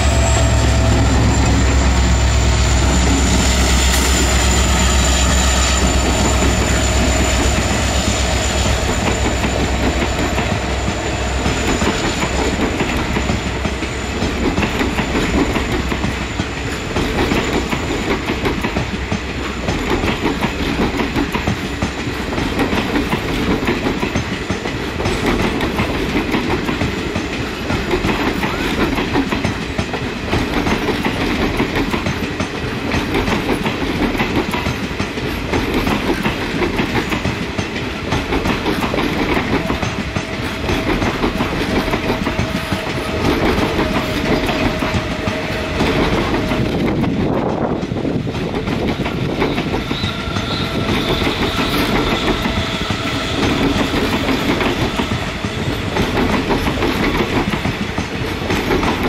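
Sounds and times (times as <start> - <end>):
train wheels clattering over rails: 0.0 - 59.0.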